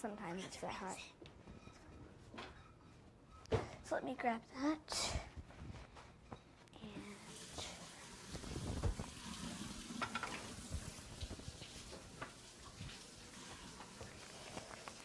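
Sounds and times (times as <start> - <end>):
utensils and dishes clattering: 8.9 - 14.0.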